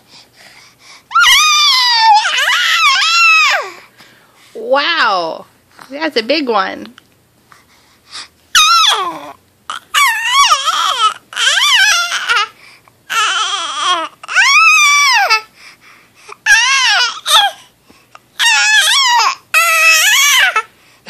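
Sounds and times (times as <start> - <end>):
baby squealing and cooing: 1.1 - 3.8, 8.5 - 12.5, 13.1 - 15.5, 16.4 - 17.6, 18.3 - 20.7.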